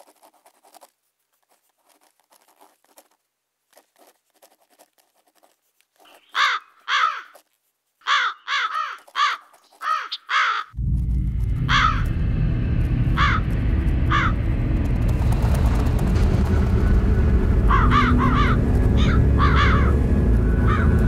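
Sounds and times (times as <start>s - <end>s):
faint scratching and clicking: 0.0s - 8.1s
crows cawing: 6.3s - 7.4s, 8.0s - 10.8s, 11.6s - 12.2s, 13.1s - 14.4s, 17.5s - 21.0s.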